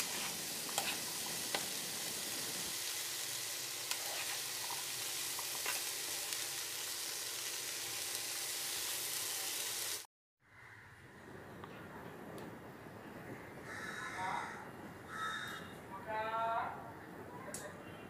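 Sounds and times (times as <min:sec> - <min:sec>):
food sizzling in a frying pan: 0:00.0 - 0:10.1.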